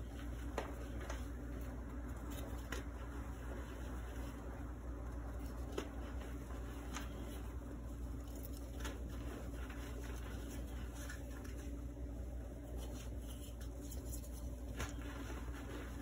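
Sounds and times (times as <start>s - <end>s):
steady low hum: 0.0s - 16.0s
chalk powder rustling: 5.4s - 16.0s.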